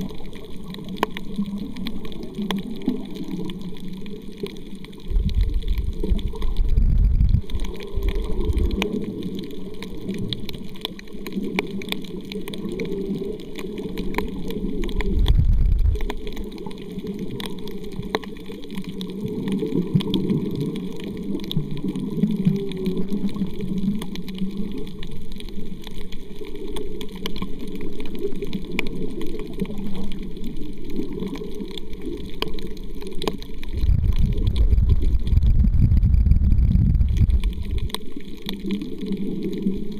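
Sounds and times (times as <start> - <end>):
faint underwater clicks: 0.0 - 39.9
underwater rumble of moving water: 0.0 - 39.9.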